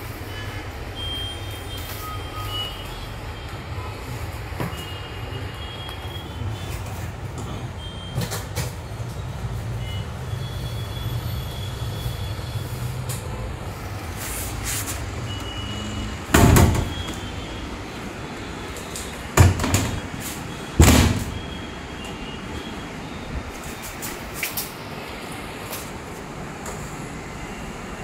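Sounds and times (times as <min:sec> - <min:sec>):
metal cabinet door shutting: 0:16.3 - 0:17.0, 0:19.4 - 0:20.1, 0:20.8 - 0:21.4.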